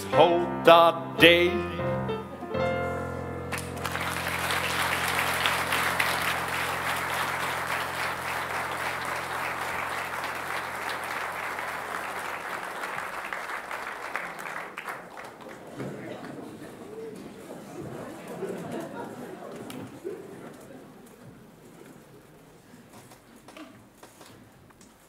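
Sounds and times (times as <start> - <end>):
held musical chord: 0.0 - 12.2
audience applauding: 3.5 - 16.6.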